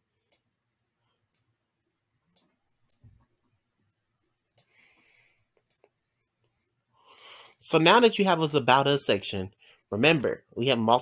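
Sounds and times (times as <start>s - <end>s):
computer mouse clicking: 0.2s - 0.5s, 2.3s - 3.1s.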